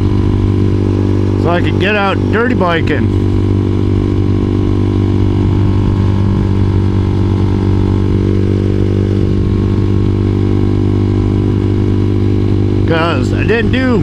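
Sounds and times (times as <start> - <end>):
motorcycle engine cruising: 0.0 - 14.0.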